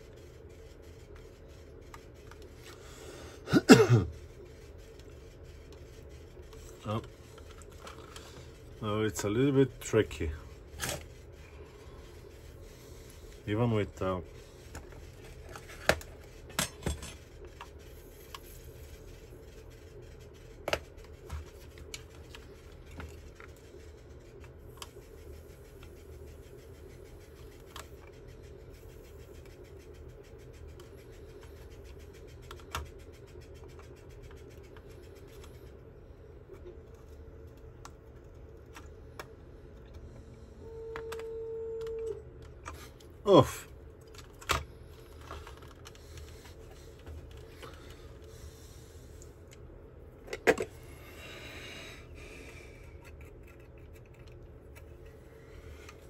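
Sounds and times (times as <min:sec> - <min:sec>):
humming tone: 0:39.9 - 0:42.3.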